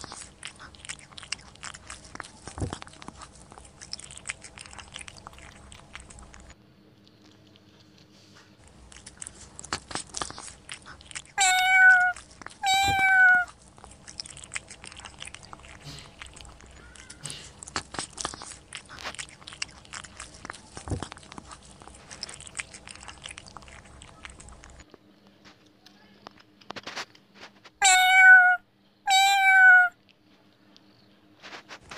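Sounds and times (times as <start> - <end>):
cat crunching dry food: 0.0 - 25.0
cat meowing: 11.3 - 13.6, 27.8 - 30.0.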